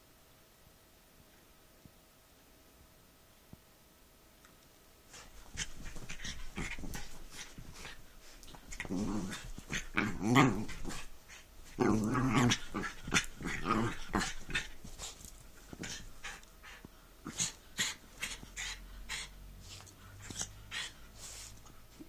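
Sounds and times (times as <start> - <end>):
dog scuffing and snuffling: 5.1 - 16.4
small dog play-growling: 5.1 - 21.3.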